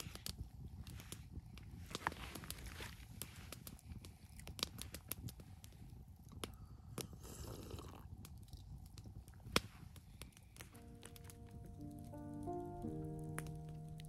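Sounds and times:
campfire crackling and popping: 0.0s - 14.0s.

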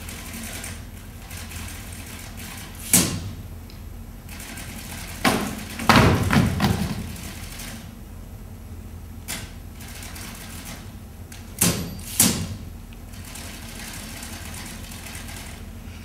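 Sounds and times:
low room hum: 0.0s - 16.0s
sharp knocks: 5.2s - 7.3s.

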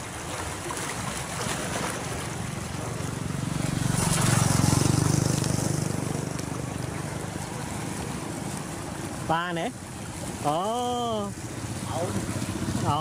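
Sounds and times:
rushing water: 0.0s - 13.0s
small engine running: 2.8s - 8.5s.

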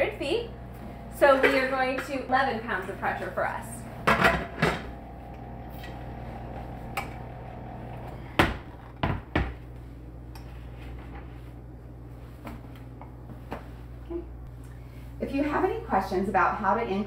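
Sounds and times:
low hum: 0.0s - 16.5s.

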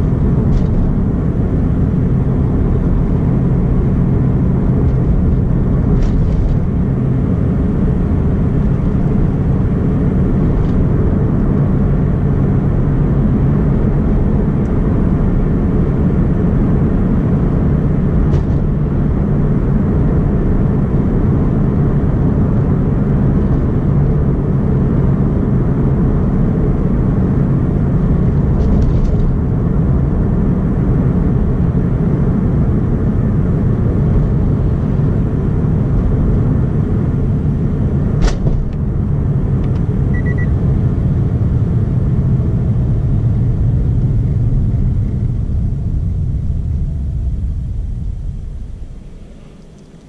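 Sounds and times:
car cabin engine and tyre rumble: 0.0s - 50.0s.

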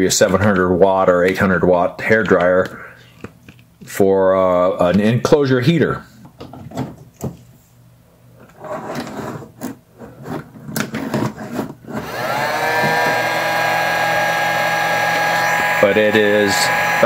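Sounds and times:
heat gun fan whine: 12.0s - 17.0s.

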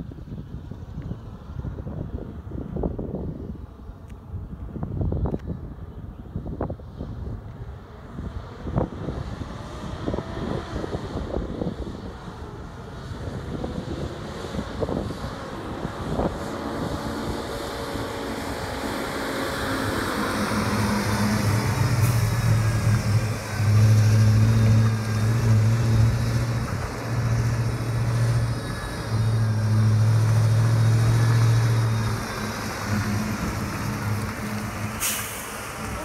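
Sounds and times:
truck engine driving past: 7.9s - 36.0s.

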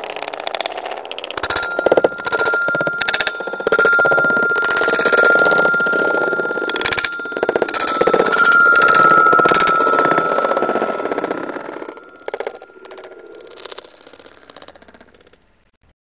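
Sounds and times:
metallic ringing: 1.4s - 13.7s
marbles rattling down wooden groove: 1.4s - 14.8s.

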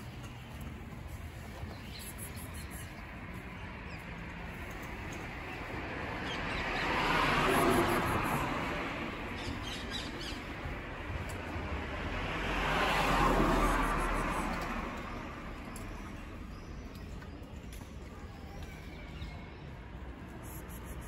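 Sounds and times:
vehicle passing on road: 0.0s - 16.5s
small birds chirping: 0.2s - 6.9s.

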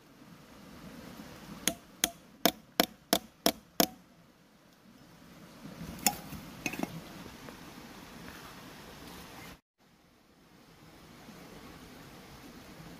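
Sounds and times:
hammer striking metal pipe: 1.7s - 4.0s.

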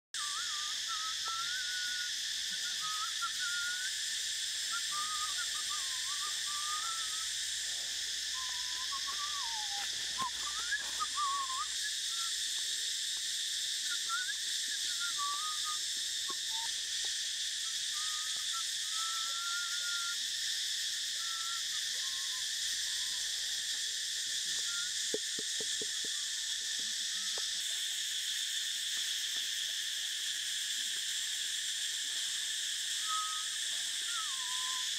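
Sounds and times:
insects chorus: 0.2s - 34.9s
birds whistling: 4.8s - 7.4s, 8.3s - 12.4s, 13.9s - 16.8s, 17.7s - 20.2s, 33.1s - 34.9s.

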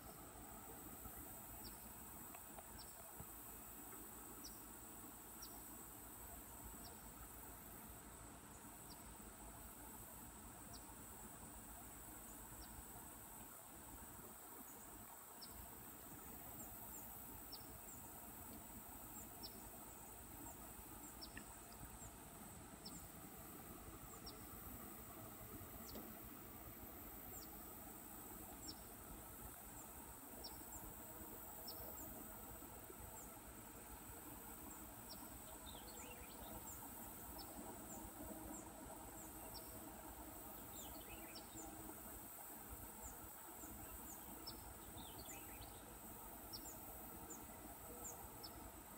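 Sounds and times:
insect chirps: 0.0s - 48.9s
insect drone: 0.0s - 48.9s.

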